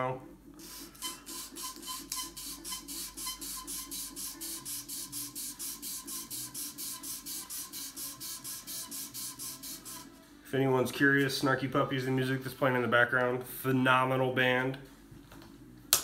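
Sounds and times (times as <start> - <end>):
sandpaper rasping: 0.6 - 10.2.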